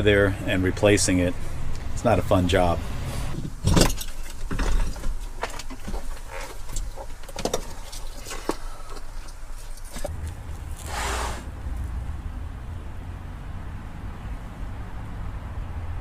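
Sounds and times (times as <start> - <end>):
clicks and knocks of handled heater: 3.4 - 10.2
brief rush of noise: 10.8 - 11.5.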